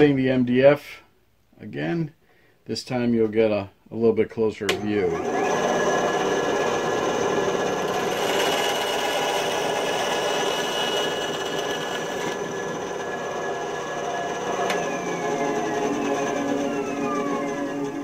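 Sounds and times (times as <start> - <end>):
band saw cutting wood: 4.7 - 18.0
band saw humming: 4.7 - 18.0.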